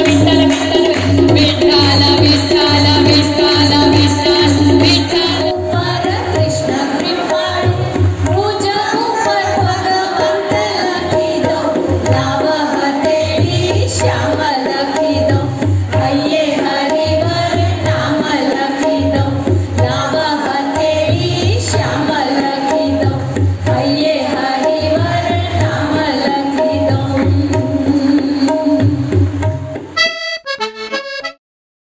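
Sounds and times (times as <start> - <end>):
woman singing through microphone: 0.0 - 29.2
tabla playing: 0.0 - 31.4.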